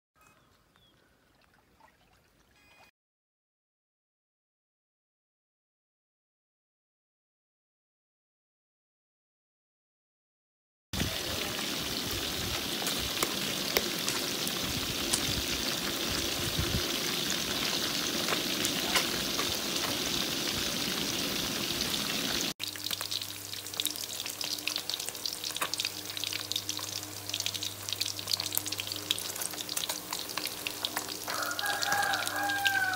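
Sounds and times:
fish deep-frying in oil: 0:11.0 - 0:32.9
spattering oil crackles and pops: 0:12.5 - 0:20.7, 0:22.3 - 0:32.9.

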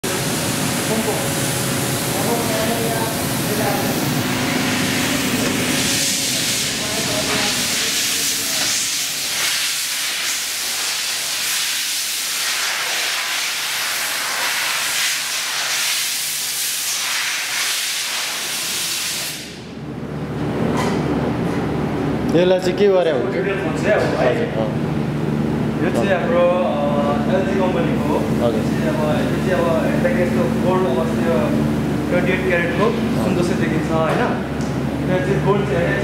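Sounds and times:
rushing air hiss: 0:02.4 - 0:19.6.

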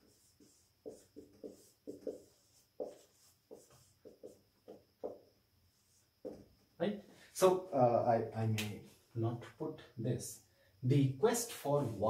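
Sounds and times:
marker squeaking on whiteboard: 0:00.0 - 0:06.5.

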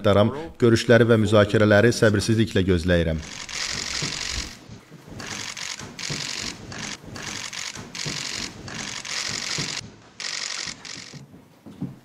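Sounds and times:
camera shutters clicking: 0:03.2 - 0:04.6, 0:05.2 - 0:11.2.

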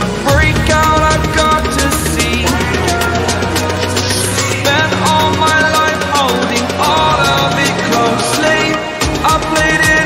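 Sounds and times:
sustained synth tones: 0:00.3 - 0:07.6
steady kick-drum beat: 0:00.3 - 0:08.0.

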